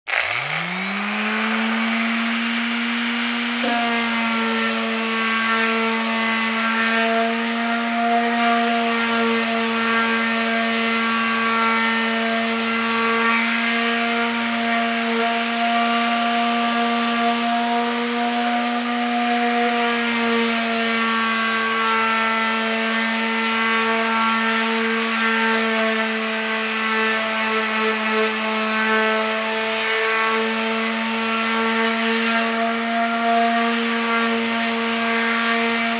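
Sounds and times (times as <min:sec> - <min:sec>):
palm sander motor whine: 0:00.1 - 0:35.9
sanding pad rasping on wood: 0:00.1 - 0:35.9.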